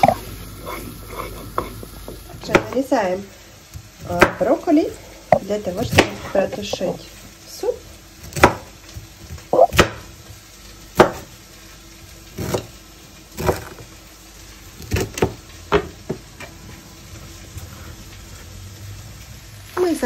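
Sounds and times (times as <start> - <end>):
knife chopping on wooden board: 8.3 - 8.7, 9.6 - 10.1, 11.0 - 11.3.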